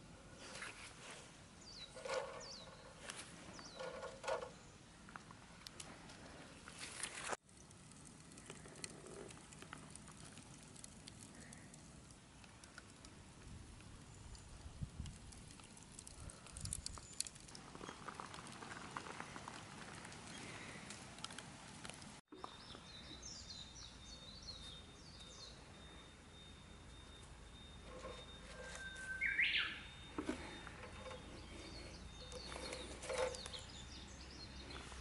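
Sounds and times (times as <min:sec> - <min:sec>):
faint outdoor ambience: 0:00.0 - 0:35.0
bird chirping: 0:01.6 - 0:04.8, 0:22.3 - 0:35.0
grill clicks and crackles: 0:01.8 - 0:22.2, 0:30.1 - 0:33.8.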